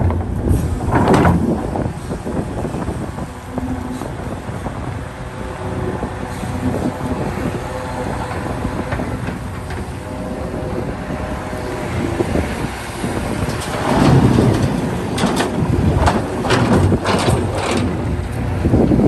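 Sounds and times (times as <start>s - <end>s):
excavator diesel engine rumbling: 0.0s - 19.0s
metal knocks and clanks: 13.2s - 18.4s.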